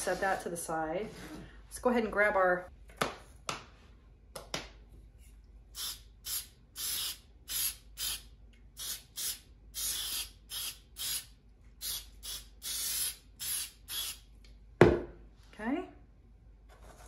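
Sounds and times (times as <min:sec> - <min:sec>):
aerosol spray hissing spurts: 0:05.8 - 0:08.2, 0:08.8 - 0:14.2.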